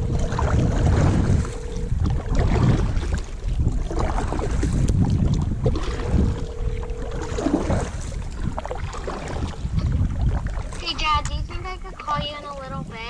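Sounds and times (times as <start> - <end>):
paddle splashing in water: 0.0 - 12.6
wind buffeting microphone: 0.0 - 13.0.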